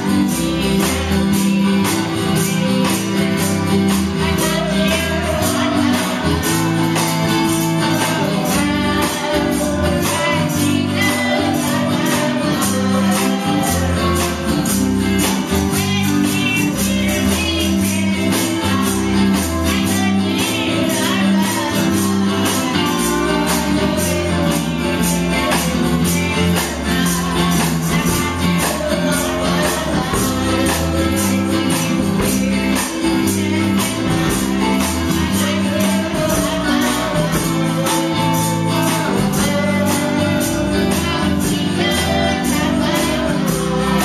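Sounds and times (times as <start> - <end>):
live band playing: 0.0 - 44.0
woman singing into microphone: 0.0 - 44.0.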